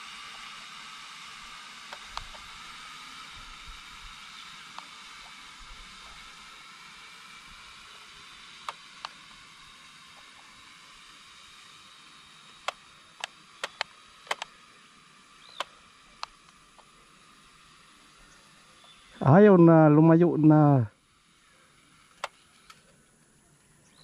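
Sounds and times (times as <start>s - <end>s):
toy drone propeller whine: 0.0s - 24.0s
sharp clicks: 1.9s - 2.4s, 12.6s - 14.6s, 15.5s - 16.9s.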